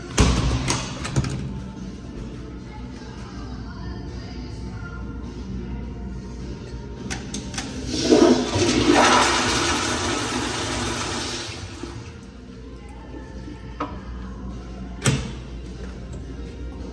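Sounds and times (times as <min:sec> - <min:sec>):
toilet flushing: 0:07.4 - 0:12.2.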